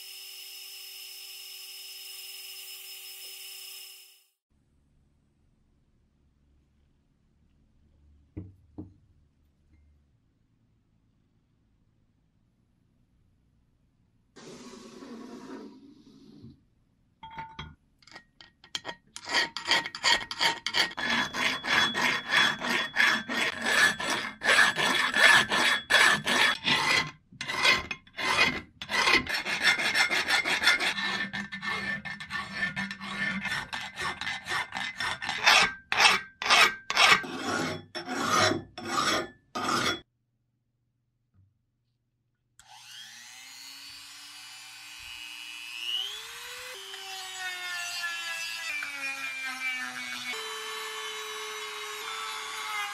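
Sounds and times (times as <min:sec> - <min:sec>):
electric rotary tool whining: 0:00.0 - 0:04.3, 0:42.6 - 0:47.4
hand file rasping on metal: 0:18.6 - 0:40.1.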